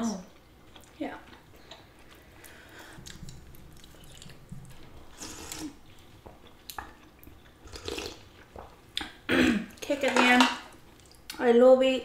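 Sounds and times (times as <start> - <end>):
chewing: 0.4 - 9.2.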